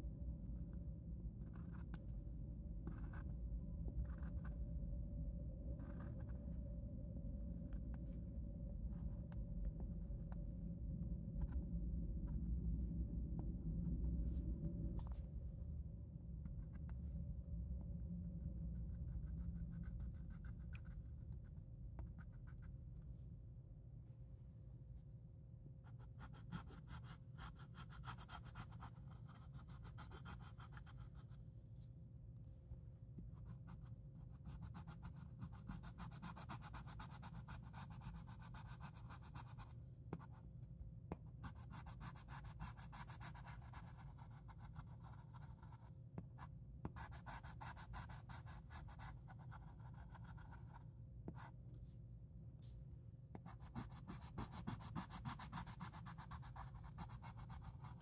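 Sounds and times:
pencil scratching on paper: 26.0 - 31.3, 33.4 - 40.4, 41.4 - 45.9, 46.8 - 51.5, 53.4 - 58.0.

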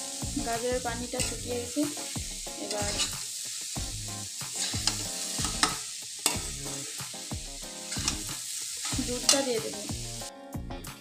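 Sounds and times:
carrots sizzling in a pan: 0.0 - 10.7
steel spatula scraping pan: 1.0 - 1.6, 2.6 - 3.3, 4.5 - 6.8, 7.9 - 9.6.

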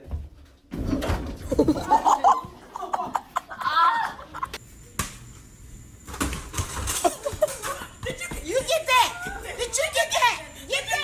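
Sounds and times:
people laughing and shrieking: 1.5 - 4.6.

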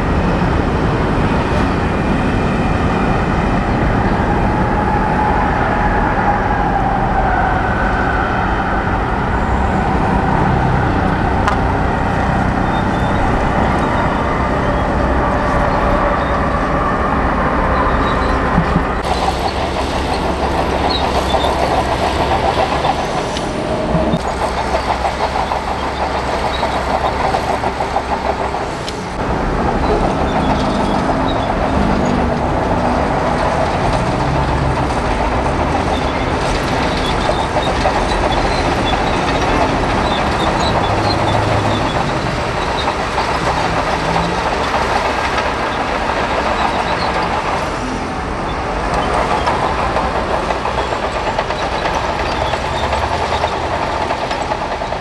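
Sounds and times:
heavy machinery diesel engines: 0.0 - 55.0.

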